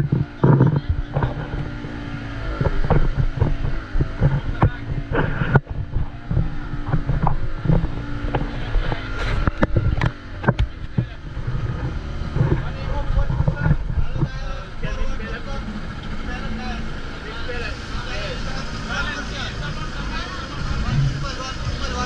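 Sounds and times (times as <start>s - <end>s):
short knocks and thumps: 0.0s - 14.4s
wind buffeting microphone: 0.0s - 17.2s
boat engine running: 0.0s - 22.0s.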